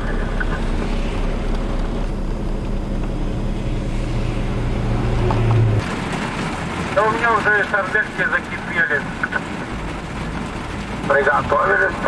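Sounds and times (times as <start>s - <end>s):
low engine hum: 0.0s - 12.0s
truck engine running: 0.0s - 12.0s
traffic hiss on wet road: 3.9s - 12.0s.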